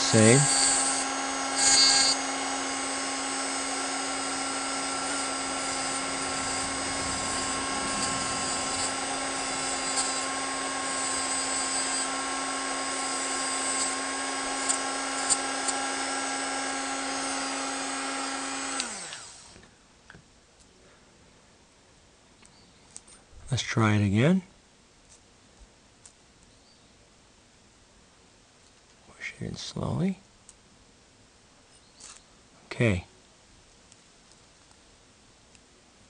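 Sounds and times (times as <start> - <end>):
grinding scrape on metal: 0.0 - 17.6
motor spinning down: 0.0 - 19.6
rotary tool whining: 0.0 - 19.7.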